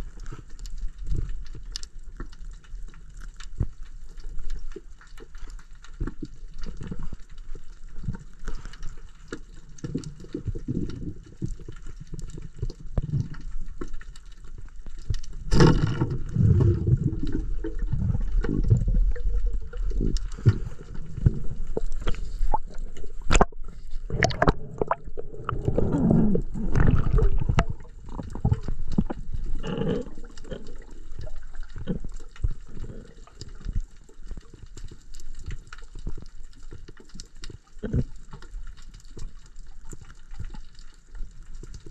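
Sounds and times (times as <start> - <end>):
underwater water movement and bubbling: 0.0 - 41.9
underwater clicks and knocks: 0.6 - 41.9
water churning: 6.4 - 34.5
sharp underwater burst: 20.4 - 29.0.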